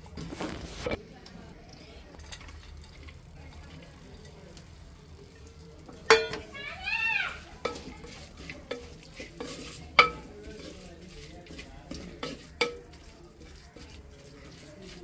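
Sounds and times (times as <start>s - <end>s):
faint sizzle: 0.0s - 15.0s
wooden spatula stirring in clay pot: 0.0s - 15.0s.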